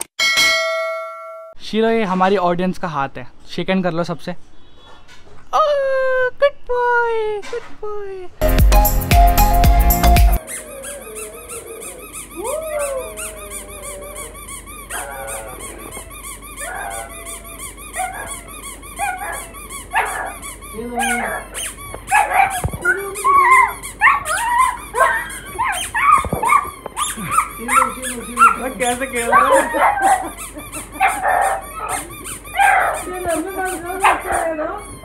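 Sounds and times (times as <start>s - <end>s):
dog whining and yapping: 10.3s - 35.0s
squeaky toy squeaks: 10.4s - 12.5s, 13.1s - 35.0s.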